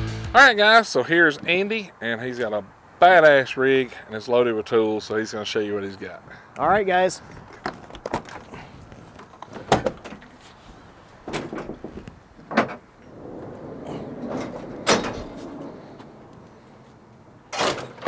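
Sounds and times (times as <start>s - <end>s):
latch clicks and knocks: 9.2s - 10.3s, 11.2s - 16.4s
bed slide rolling out: 12.7s - 17.6s
sharp metal clunk: 17.5s - 18.0s.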